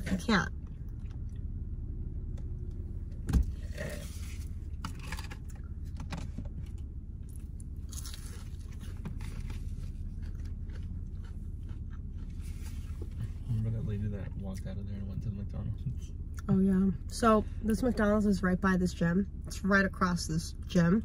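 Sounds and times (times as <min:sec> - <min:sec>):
low hum inside car: 0:00.0 - 0:21.0
chewing: 0:00.6 - 0:01.7, 0:07.2 - 0:13.8.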